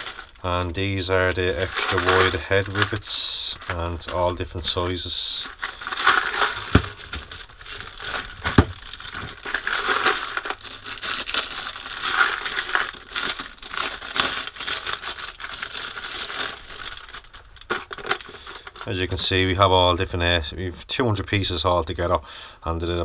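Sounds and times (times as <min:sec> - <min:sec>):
plastic bag crinkling: 0:00.0 - 0:18.9.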